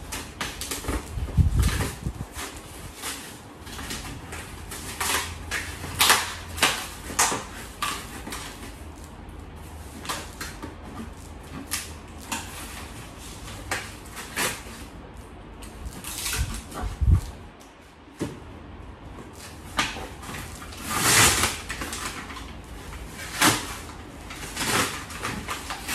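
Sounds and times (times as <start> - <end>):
cardboard box scraping and rustling: 0.1 - 8.9, 19.2 - 25.9.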